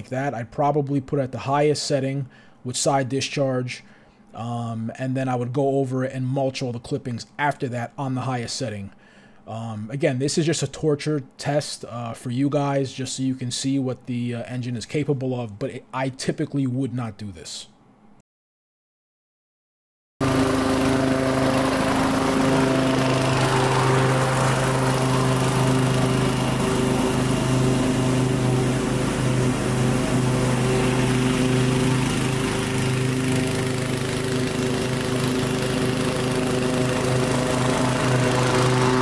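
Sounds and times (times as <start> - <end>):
lawn mower engine running: 20.2 - 39.0.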